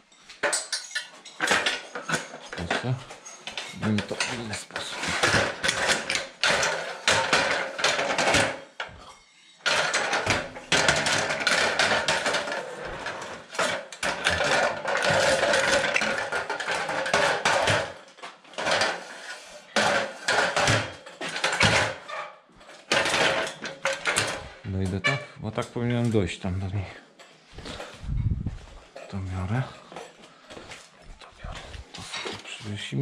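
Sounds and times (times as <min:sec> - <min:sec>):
wood and hard objects knocking: 0:00.4 - 0:25.2.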